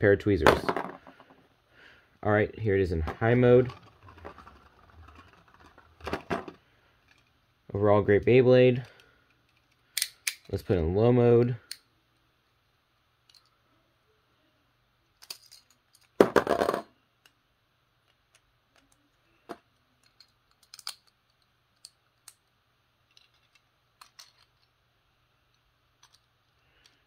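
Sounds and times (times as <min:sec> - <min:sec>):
part clattering on plastic floor: 0:00.5 - 0:01.4, 0:03.1 - 0:06.6
plastic and metal parts clicking: 0:03.7 - 0:07.3, 0:20.0 - 0:22.5, 0:23.1 - 0:24.7, 0:25.5 - 0:27.0.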